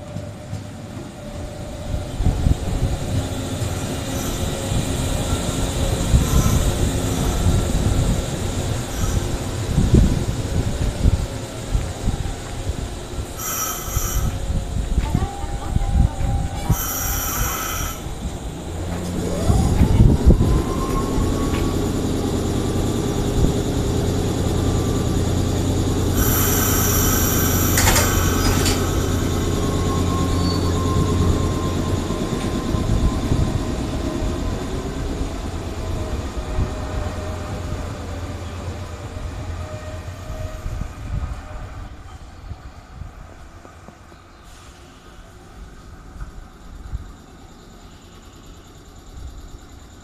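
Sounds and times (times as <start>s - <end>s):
electric train whine: 0.0s - 50.0s
wheel-on-rail noise: 0.0s - 50.0s
shrill high ringing: 26.1s - 33.5s.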